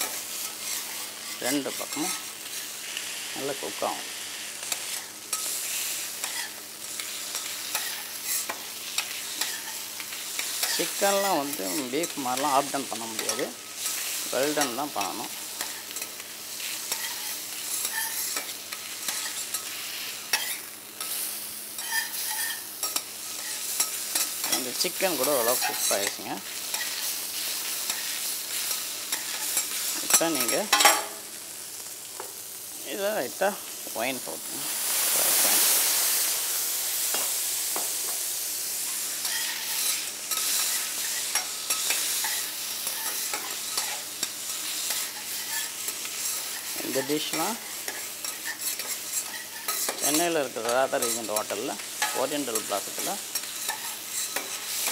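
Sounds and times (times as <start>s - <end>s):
chicken sizzling in hot oil: 0.0s - 54.9s
metal spatulas clicking and scraping: 39.2s - 54.9s.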